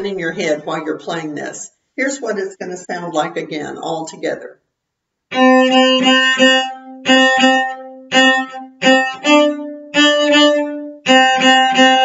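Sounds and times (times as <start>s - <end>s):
bowed cello notes: 5.3s - 12.0s.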